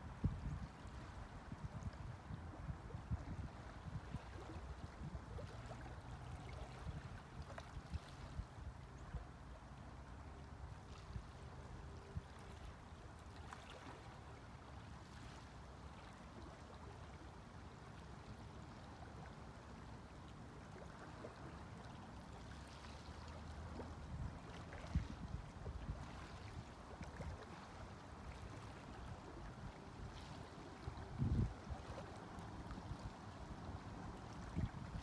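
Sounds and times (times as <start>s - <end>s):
wind rumble on microphone: 0.0s - 9.4s, 23.2s - 35.0s.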